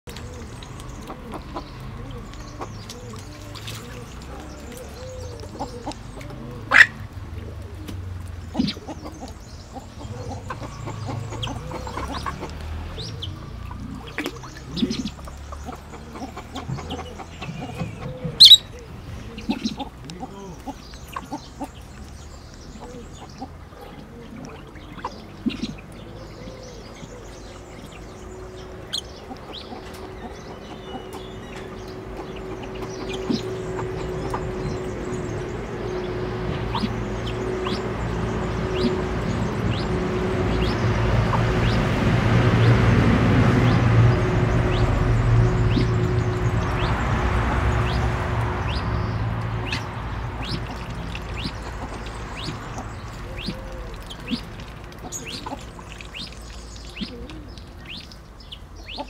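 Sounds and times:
waterfowl clucking and chirping: 0:00.1 - 0:42.2, 0:43.5 - 0:59.0
loud sharp bird chirps: 0:17.7 - 0:18.7.

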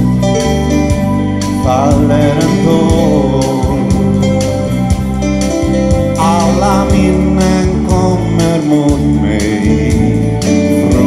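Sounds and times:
bass guitar: 0:00.0 - 0:11.0
electric guitar: 0:00.0 - 0:11.0
drum beat: 0:00.9 - 0:09.1.

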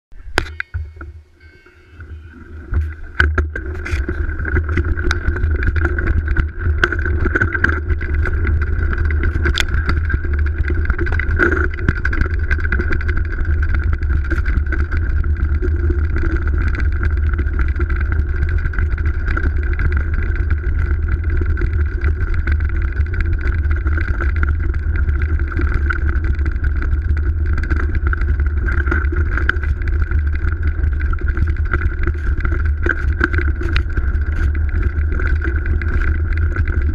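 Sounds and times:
high whine: 0:00.1 - 0:22.2
mountain bike rolling on snowy trail: 0:02.3 - 0:36.9.

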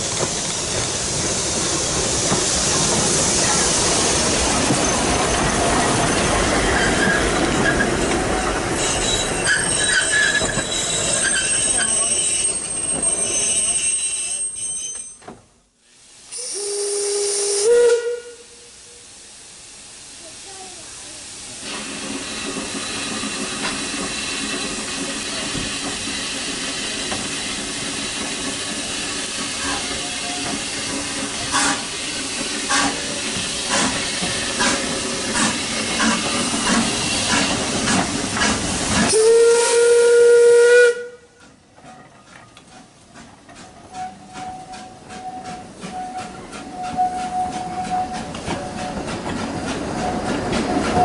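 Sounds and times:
train wheels clicking over rail joints: 0:00.0 - 0:13.4, 0:21.6 - 0:39.2, 0:41.4 - 0:51.0
steam locomotive hissing: 0:00.0 - 0:15.0, 0:15.8 - 0:51.0
steam whistle blowing: 0:16.3 - 0:19.1, 0:39.1 - 0:41.4, 0:43.9 - 0:49.0.

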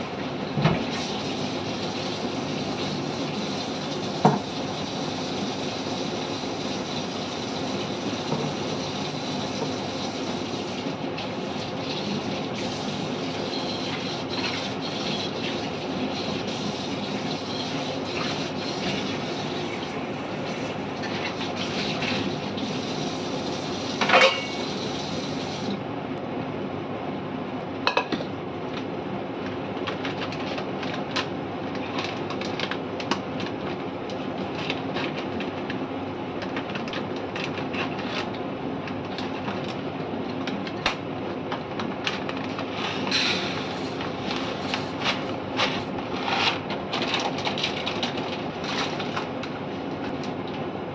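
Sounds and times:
pot bubbling and hissing: 0:00.8 - 0:25.8, 0:42.8 - 0:46.0.

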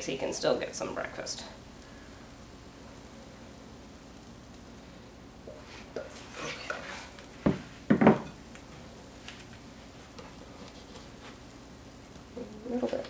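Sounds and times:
bowl knocking and clattering: 0:07.5 - 0:08.4.

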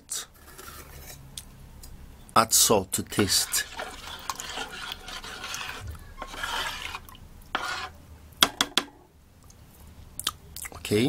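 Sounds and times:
spoon stirring batter in bowl: 0:03.0 - 0:08.0.

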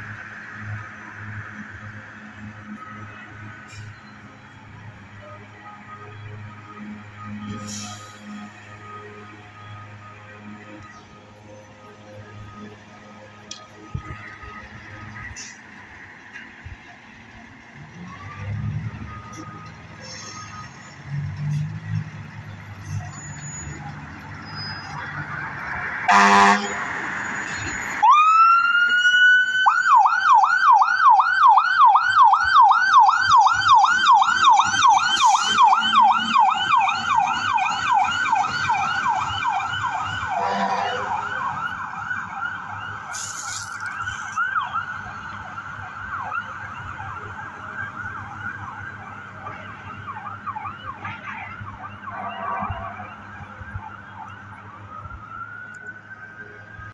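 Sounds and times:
fire engine horn blast: 0:07.5 - 0:08.6, 0:26.1 - 0:27.0, 0:40.2 - 0:41.7
siren yelping: 0:22.9 - 0:56.9.

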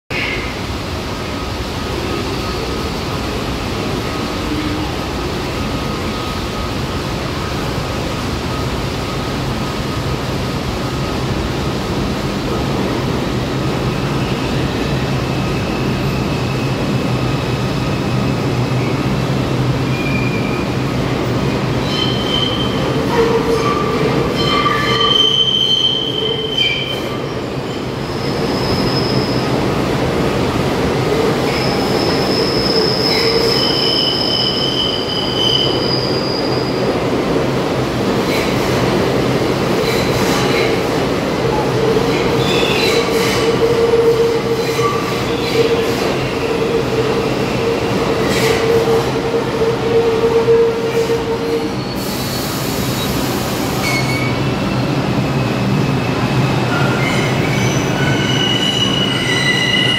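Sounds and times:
train wheels rumbling on rails: 0:00.1 - 0:59.9
high-pitched wheel squeals: 0:21.8 - 0:22.8, 0:56.8 - 0:59.9.

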